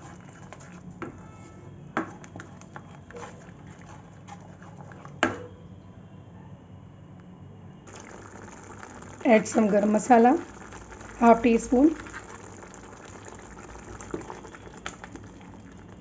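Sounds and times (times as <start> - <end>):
spatula stirring paste: 0.0 - 5.2, 7.9 - 16.0
frying sizzle: 7.9 - 16.0.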